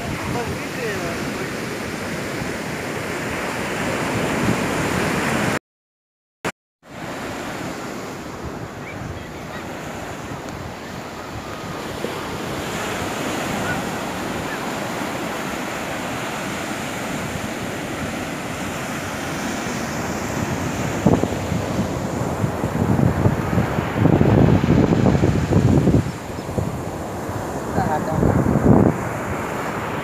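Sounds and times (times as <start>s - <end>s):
surf washing up beach: 0.0s - 5.6s, 6.9s - 30.0s
wind buffeting microphone: 8.2s - 30.0s.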